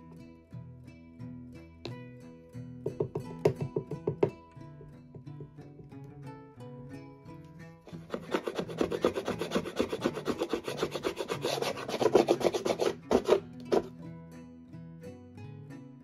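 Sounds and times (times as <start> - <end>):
plucked guitar music: 0.0 - 16.0
rubbing strokes on wood: 7.9 - 13.9.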